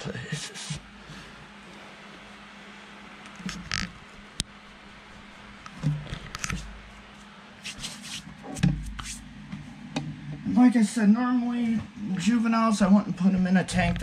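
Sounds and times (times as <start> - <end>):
hands scraping and rustling substrate: 7.6 - 8.3.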